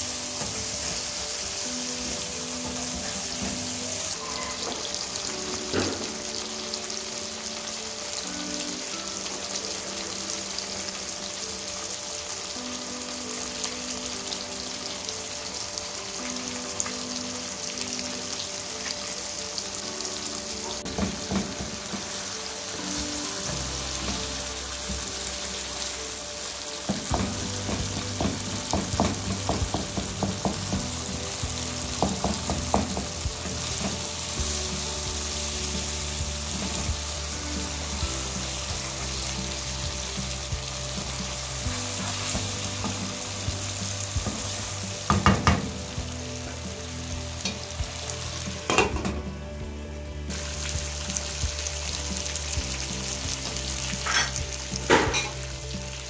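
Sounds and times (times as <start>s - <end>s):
chicken sizzling in oil: 0.0s - 56.0s
wooden spatula scraping a pan: 54.0s - 54.4s.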